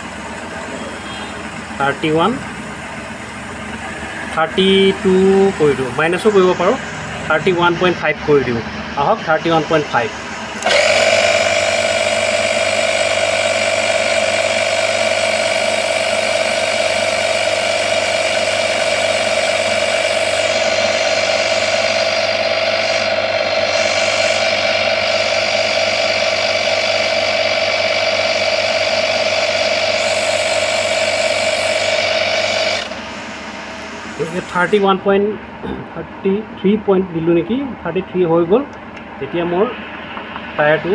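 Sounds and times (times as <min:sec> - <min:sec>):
tyre inflator compressor drone: 0:00.0 - 0:35.8.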